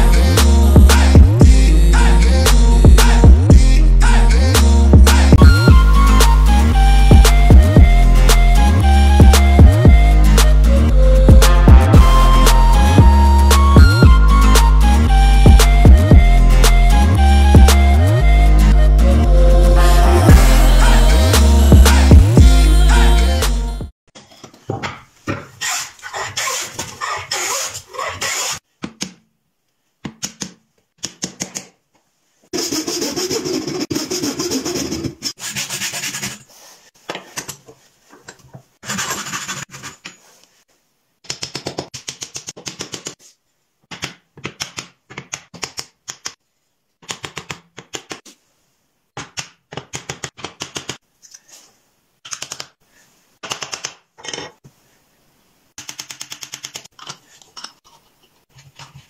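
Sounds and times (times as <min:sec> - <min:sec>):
hand plane shaving wood: 0:32.6 - 0:36.5.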